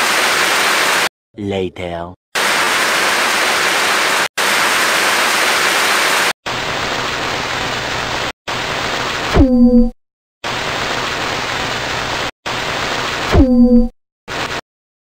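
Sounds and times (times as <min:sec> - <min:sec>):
loud static hiss: 0:00.0 - 0:01.1, 0:02.4 - 0:09.4, 0:10.4 - 0:13.4, 0:14.3 - 0:14.6.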